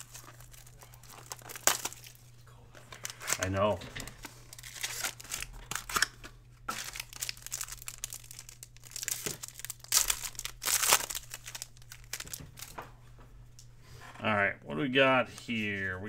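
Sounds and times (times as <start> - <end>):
foil wrapper tearing and crinkling: 0.0 - 2.2, 2.9 - 3.8, 4.5 - 12.7.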